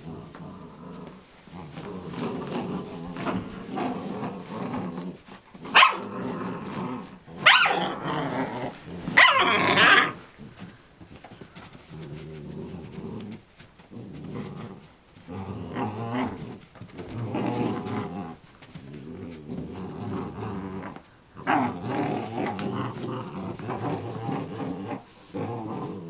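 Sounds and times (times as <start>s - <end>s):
puppies growling: 0.0s - 26.0s
puppy yelp: 7.4s - 7.9s, 9.2s - 10.2s.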